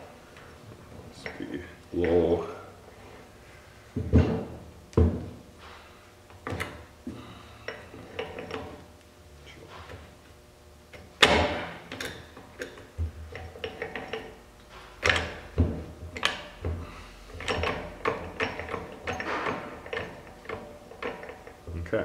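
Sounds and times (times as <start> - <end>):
gear shift metallic clicks and clunks: 11.2 - 21.9.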